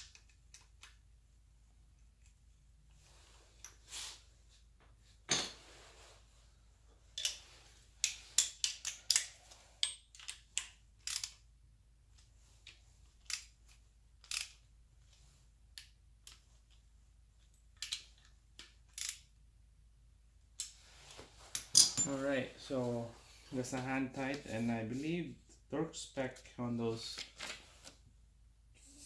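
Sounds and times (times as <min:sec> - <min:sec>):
ratchet metal clicks: 0:08.0 - 0:11.4.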